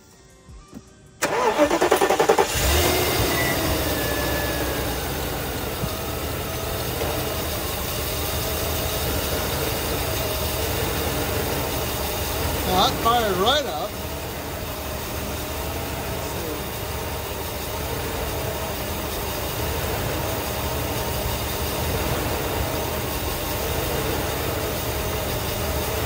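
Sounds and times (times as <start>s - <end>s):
engine idling with misfire: 0.7s - 26.0s
engine starter cranking: 0.8s - 7.8s.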